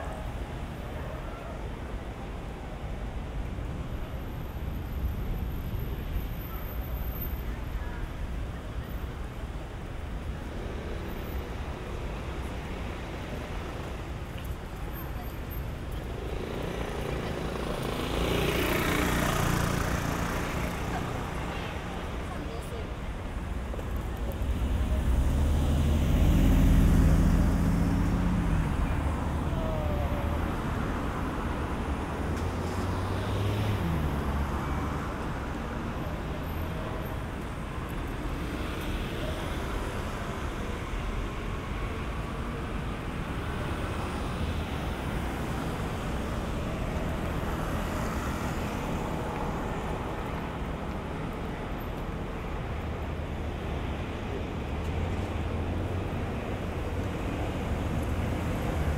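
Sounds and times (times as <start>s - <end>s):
city traffic noise: 0.0s - 58.9s
cars driving past: 15.8s - 58.9s
suv engine rumble passing: 24.4s - 35.0s.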